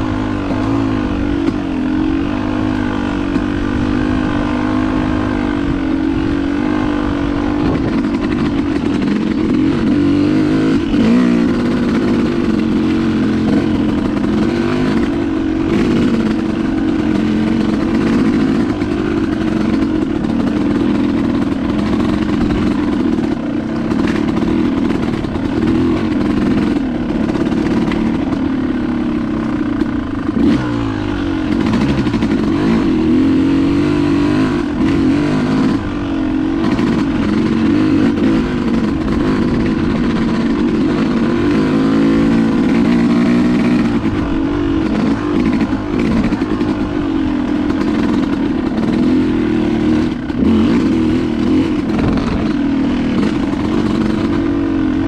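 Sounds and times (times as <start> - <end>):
dirt bike engine revving: 0.0 - 55.0
bike knocking and clattering: 7.6 - 10.1.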